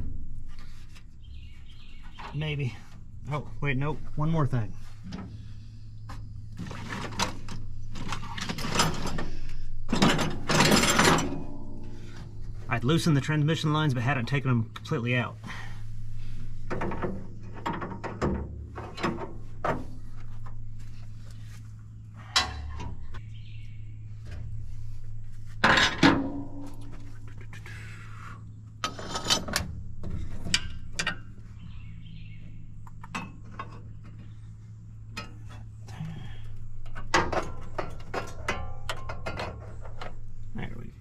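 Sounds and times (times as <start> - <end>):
steady low hum: 0.0 - 41.0
metal tools clinking and clanking: 6.8 - 12.2.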